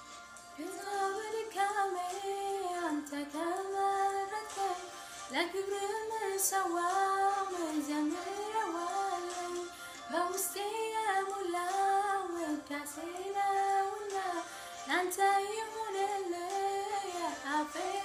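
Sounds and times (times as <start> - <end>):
woman singing a hymn: 0.6 - 18.0
breath: 4.9 - 5.3, 9.7 - 10.1, 14.4 - 14.9.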